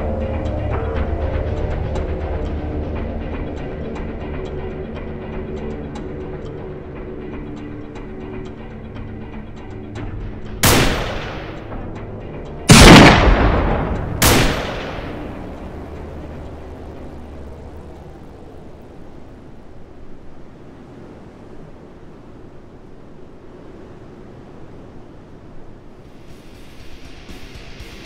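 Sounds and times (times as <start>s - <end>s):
low steady hiss: 10.0s - 28.0s
loud soundtrack blasts: 10.5s - 19.2s.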